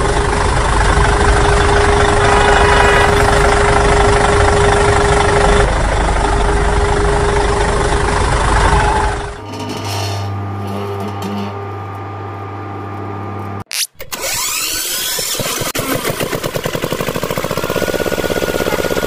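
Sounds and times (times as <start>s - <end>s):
fast pulsing whir: 1.0s - 5.7s.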